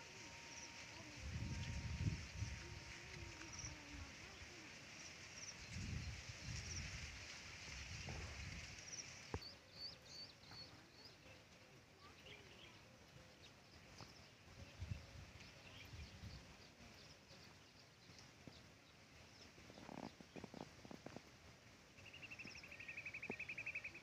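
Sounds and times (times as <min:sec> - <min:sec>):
small birds chirping: 0:00.0 - 0:24.0
steady high hiss: 0:00.0 - 0:24.0
wind rumble on microphone: 0:01.1 - 0:04.5, 0:05.6 - 0:09.4, 0:14.5 - 0:16.6, 0:19.6 - 0:21.4.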